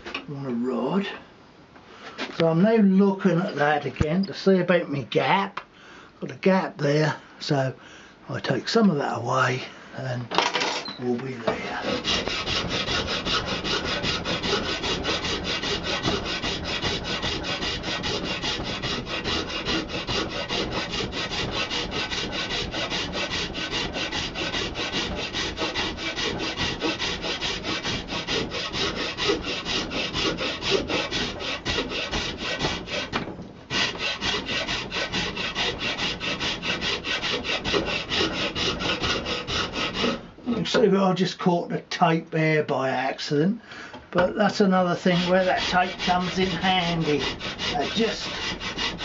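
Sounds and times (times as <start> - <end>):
hand file rasping on horn: 11.5 - 40.2, 44.6 - 49.0.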